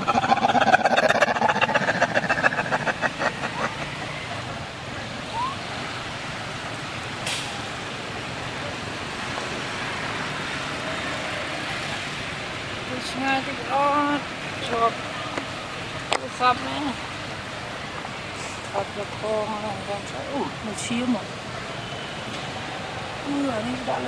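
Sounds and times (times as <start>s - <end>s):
vehicle engine pulsing: 0.0s - 16.5s
traffic noise: 0.0s - 24.0s
short hissy click: 7.2s - 7.6s.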